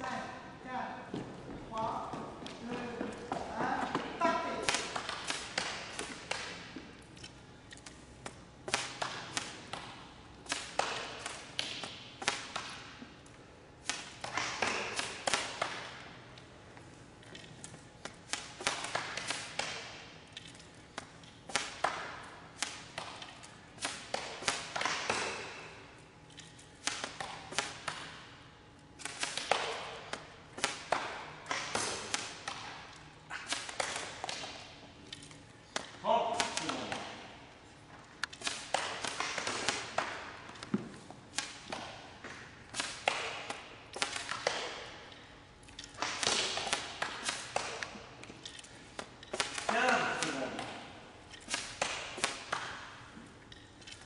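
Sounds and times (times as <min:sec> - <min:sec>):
darts striking targets: 0:03.3 - 0:06.8, 0:08.2 - 0:13.0, 0:13.8 - 0:16.1, 0:21.0 - 0:25.8, 0:29.0 - 0:34.8, 0:35.7 - 0:37.5, 0:38.2 - 0:45.2, 0:45.9 - 0:53.0.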